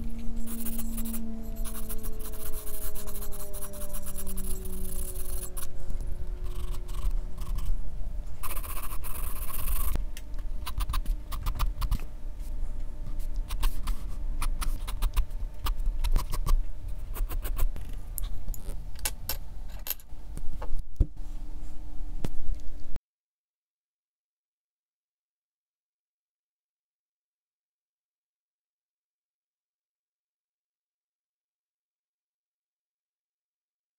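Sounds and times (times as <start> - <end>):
pencil scratching on paper: 0.4 - 5.7, 6.4 - 7.8, 8.4 - 10.0, 13.1 - 17.8
pencil clicks and rattles: 8.4 - 10.0, 10.6 - 12.0, 13.5 - 18.0.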